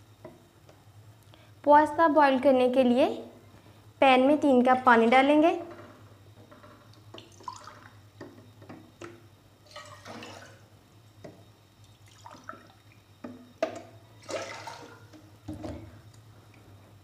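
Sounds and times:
water pouring into a pot: 9.7s - 10.7s.

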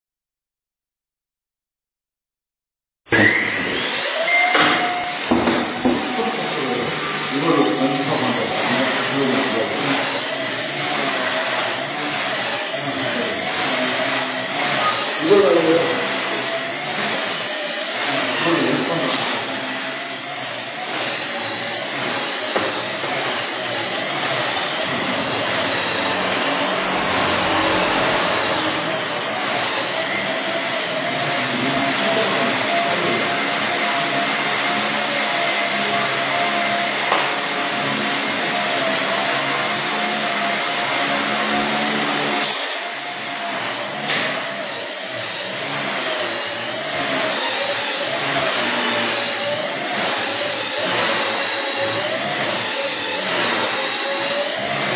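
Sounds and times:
toy helicopter motor whine: 3.1s - 54.9s
sharp tap: 37.1s - 37.3s.

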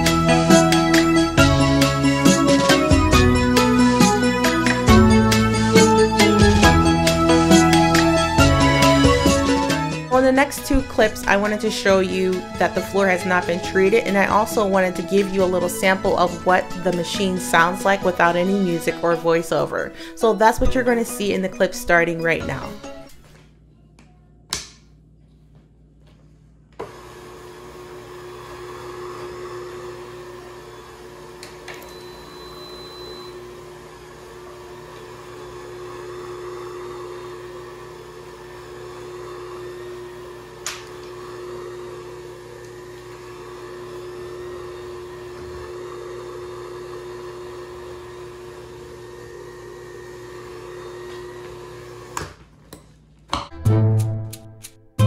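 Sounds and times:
spin mop motor hum: 26.8s - 52.4s.

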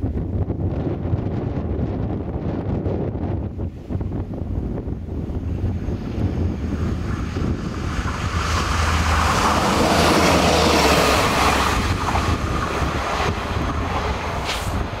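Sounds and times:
wind buffeting microphone: 0.0s - 15.0s
diesel railcar passing: 5.0s - 15.0s.

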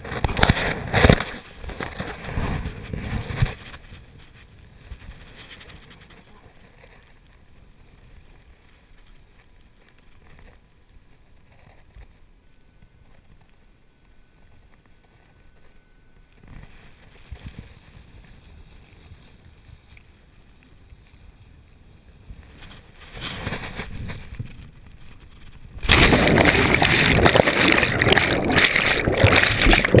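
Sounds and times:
wind rushing over microphone: 0.0s - 6.0s
churning water: 25.8s - 30.0s
loud impact into water: 25.8s - 30.0s.

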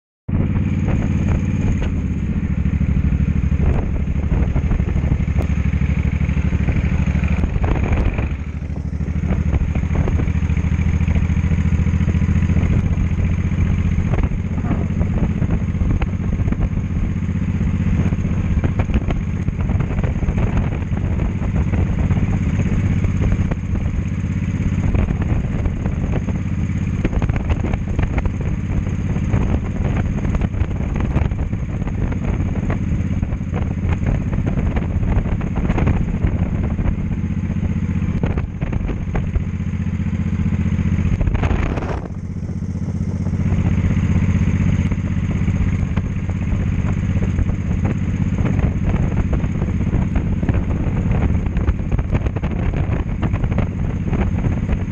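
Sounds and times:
motorcycle engine running: 0.3s - 54.9s.

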